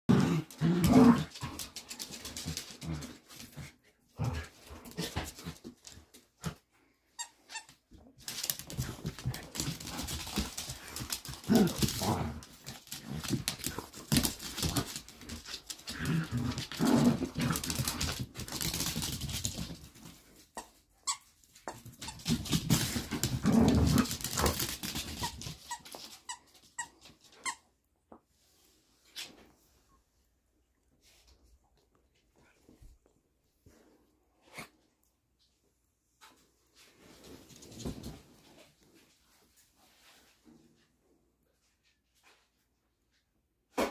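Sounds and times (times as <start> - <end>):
dogs growling: 0.1 - 5.6, 8.7 - 18.3, 22.8 - 24.7
dogs scuffling on wooden floor: 8.2 - 20.4, 21.5 - 27.1.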